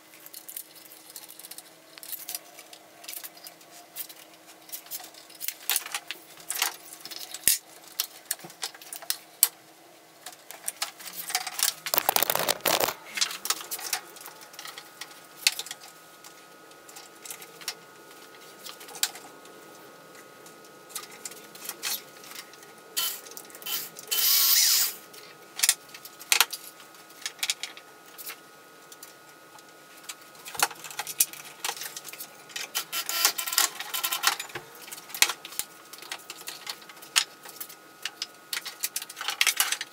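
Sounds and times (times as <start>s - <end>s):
clamps and tools rattling: 12.0s - 13.0s.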